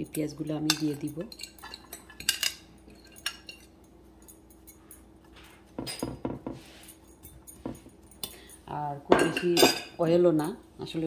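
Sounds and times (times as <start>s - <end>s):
fork clinking and scraping on glass: 0.7s - 8.6s.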